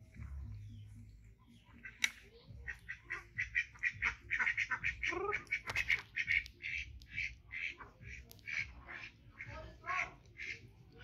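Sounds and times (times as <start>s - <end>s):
sharp click: 2.0s - 2.2s.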